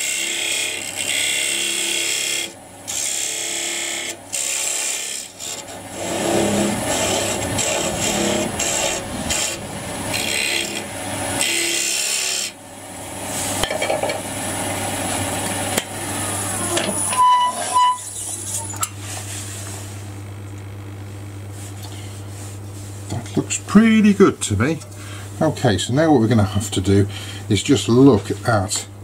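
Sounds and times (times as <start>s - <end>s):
lathe scraper cutting wood: 0.0s - 12.6s
steady low hum: 0.7s - 29.0s.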